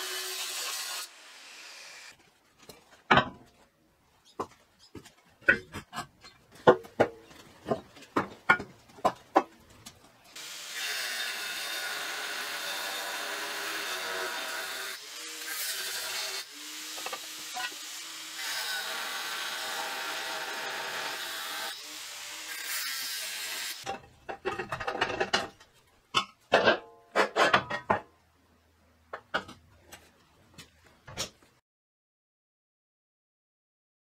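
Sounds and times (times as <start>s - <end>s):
angle grinder cutting steel: 0.0s - 2.1s, 10.4s - 23.8s.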